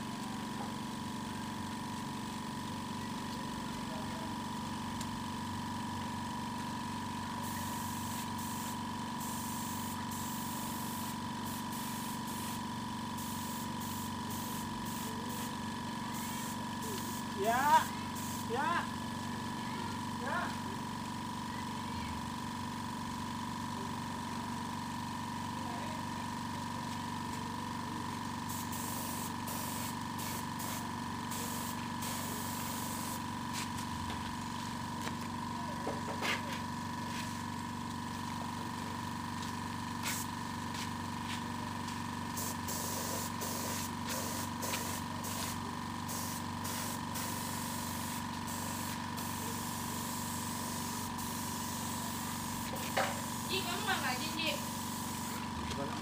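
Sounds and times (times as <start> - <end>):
air compressor humming: 0.0 - 56.0
spray gun hissing: 7.5 - 18.6, 28.5 - 33.2, 42.4 - 55.5.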